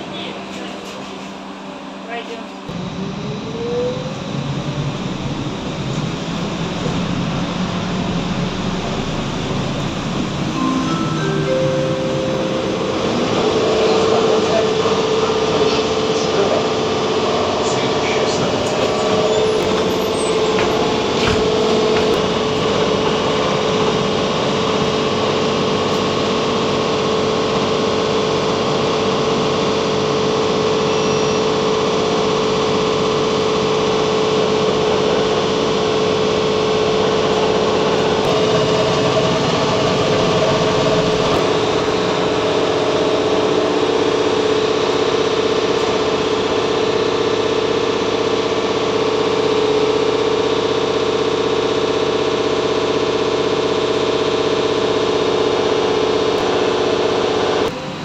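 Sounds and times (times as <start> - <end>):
road noise: 2.7 - 26.7
higher electric tone: 3.1 - 16.1.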